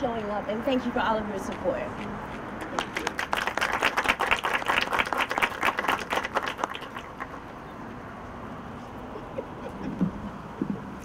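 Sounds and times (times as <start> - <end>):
people applauding: 2.6 - 7.5.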